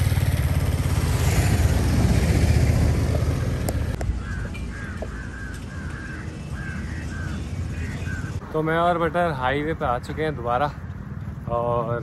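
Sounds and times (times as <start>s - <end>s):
motorcycle engine pulling away: 0.0s - 4.9s.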